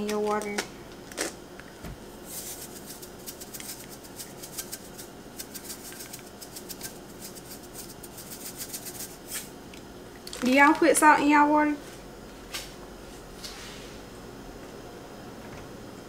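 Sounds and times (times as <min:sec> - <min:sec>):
salt shaker rattling: 0:02.2 - 0:09.5.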